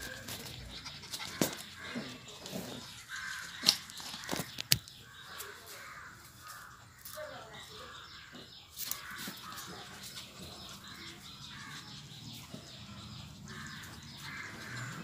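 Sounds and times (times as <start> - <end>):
puppies scuffling: 0.0 - 4.7.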